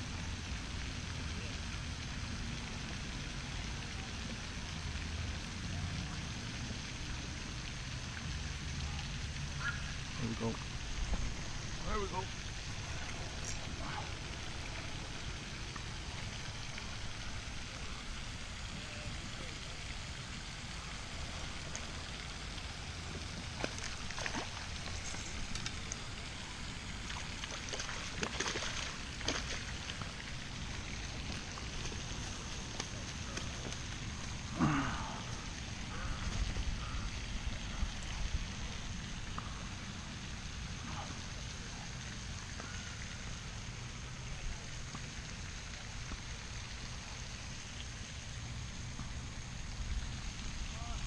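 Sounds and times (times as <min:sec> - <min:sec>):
steady water hiss: 0:00.0 - 0:51.0
short water splashes: 0:03.4 - 0:48.0.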